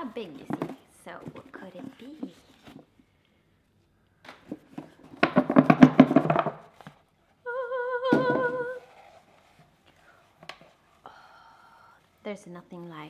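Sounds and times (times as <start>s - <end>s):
thump: 4.5s - 6.6s, 8.1s - 8.8s.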